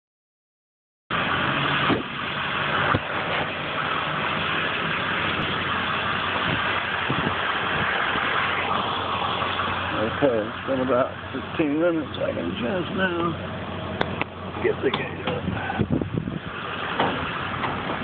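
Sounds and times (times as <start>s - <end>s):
engine idling: 1.1s - 18.0s
sharp knocks: 16.9s - 18.0s.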